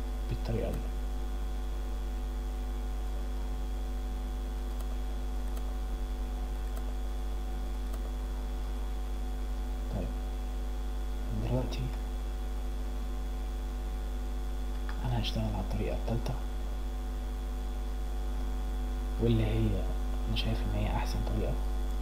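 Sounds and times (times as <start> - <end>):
electrical mains hum: 0.0 - 22.0
faint mouse clicks: 0.5 - 0.9, 4.6 - 5.7, 6.6 - 6.9, 7.8 - 8.8, 14.7 - 15.0.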